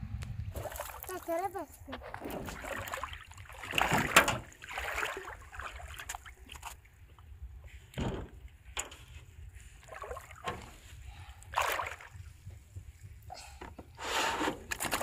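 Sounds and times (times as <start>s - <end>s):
low steady rumble: 0.0s - 2.2s.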